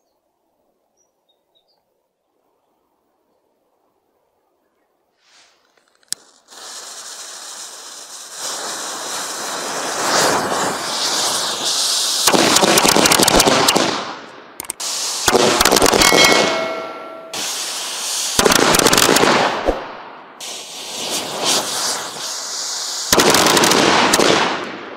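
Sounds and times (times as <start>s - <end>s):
fuse hissing: 5.2s - 12.3s, 14.7s - 15.3s, 17.2s - 18.4s, 20.4s - 23.2s
firework rockets launching: 5.2s - 24.9s.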